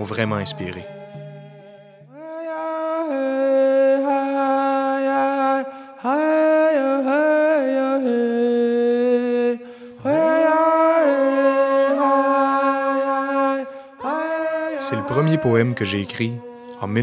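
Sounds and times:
person chanting held notes: 0.0 - 3.7, 10.0 - 17.0.

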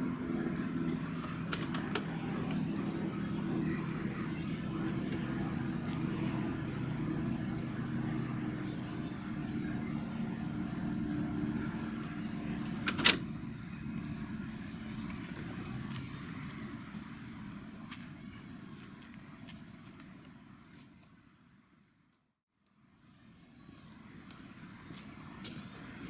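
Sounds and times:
low motor hum: 0.0 - 18.5.

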